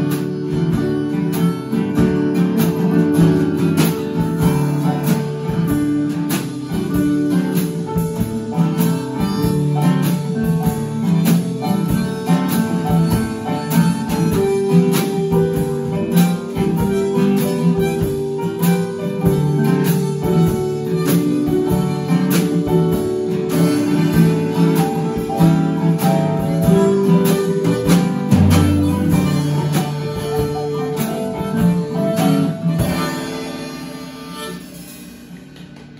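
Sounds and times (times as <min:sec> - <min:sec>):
keyboard: 0:00.0 - 0:35.0
drum kit: 0:00.0 - 0:35.9
strummed acoustic guitar: 0:00.0 - 0:35.9
harmonica long notes: 0:08.6 - 0:35.1.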